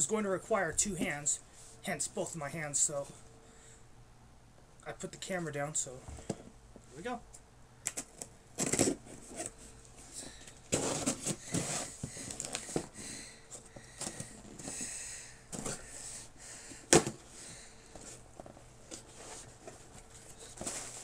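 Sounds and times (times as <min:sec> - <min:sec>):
cardboard rustling: 0:08.1 - 0:14.9, 0:17.9 - 0:21.0.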